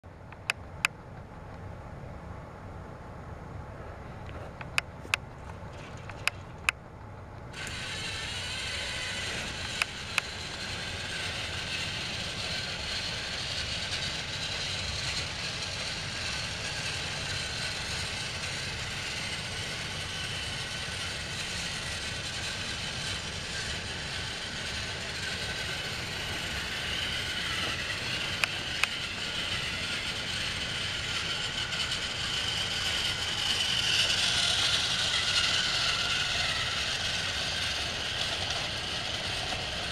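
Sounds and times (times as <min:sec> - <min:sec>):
sharp clicks: 0:04.6 - 0:05.2
toy train motor whirring: 0:04.6 - 0:06.7, 0:07.5 - 0:39.9.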